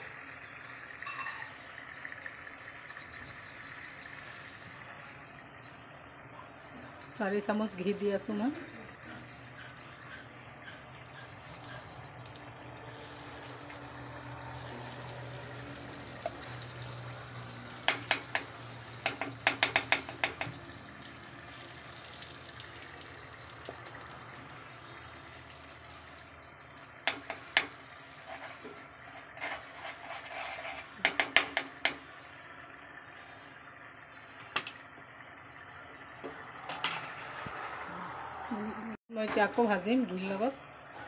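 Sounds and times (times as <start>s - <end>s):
sharp clicks against pan: 17.8s - 20.6s
hand mixing flour in pan: 27.2s - 31.7s.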